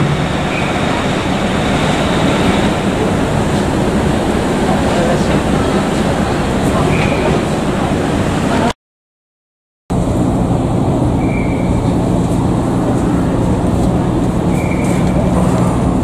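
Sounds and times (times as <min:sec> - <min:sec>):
water noise: 0:00.0 - 0:08.7
wind: 0:00.0 - 0:08.7, 0:09.9 - 0:16.0
ship engines droning: 0:00.0 - 0:08.8, 0:09.9 - 0:16.0.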